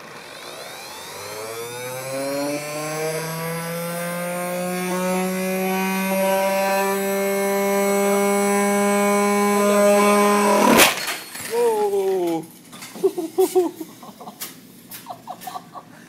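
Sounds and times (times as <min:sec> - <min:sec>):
motor whine rising in pitch: 0:00.0 - 0:11.0.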